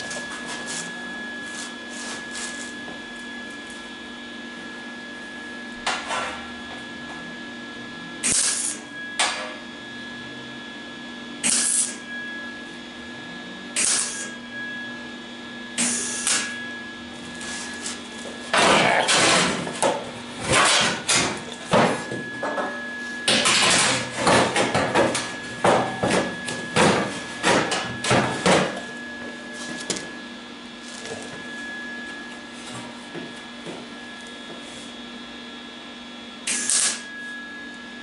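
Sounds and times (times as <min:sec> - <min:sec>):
welder crackling: 0:11.4 - 0:12.0, 0:36.5 - 0:37.0.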